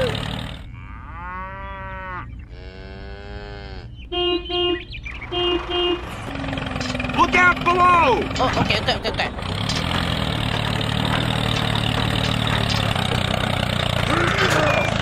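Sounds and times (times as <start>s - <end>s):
cow mooing: 0.0s - 4.8s, 13.4s - 14.9s.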